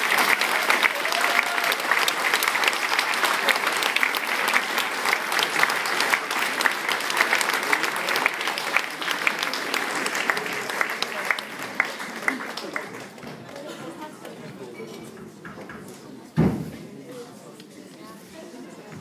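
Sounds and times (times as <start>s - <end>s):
crowd applauding: 0.0s - 13.8s.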